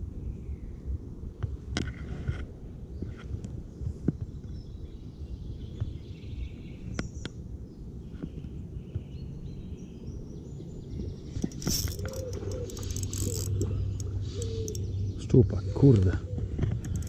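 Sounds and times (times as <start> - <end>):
faint bird chirps: 8.1 - 17.0
scattered clicks: 11.4 - 14.9, 16.0 - 17.0.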